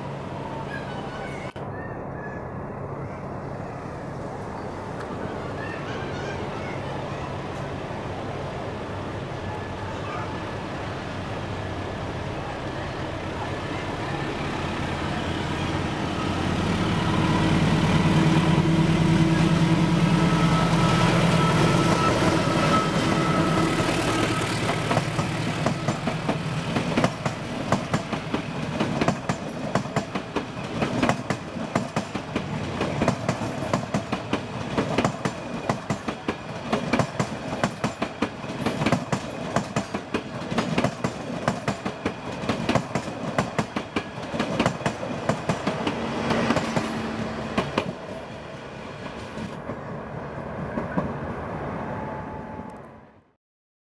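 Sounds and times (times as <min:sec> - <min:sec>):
locomotive engine hum: 0:00.0 - 0:53.1
train wheels clickety-clack: 0:24.0 - 0:48.3.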